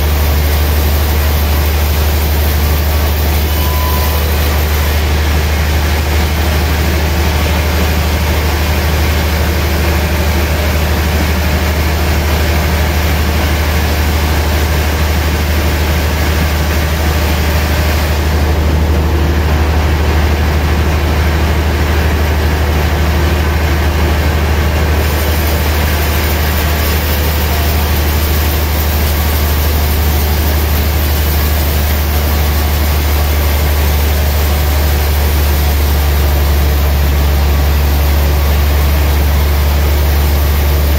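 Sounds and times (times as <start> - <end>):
band saw cutting log: 0.0 - 7.1, 25.0 - 40.9
deep hum: 0.0 - 11.3.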